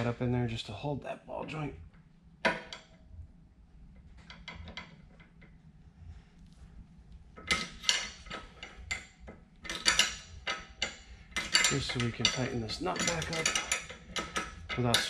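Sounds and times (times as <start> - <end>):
metal tool clink with ring: 7.5 - 15.0.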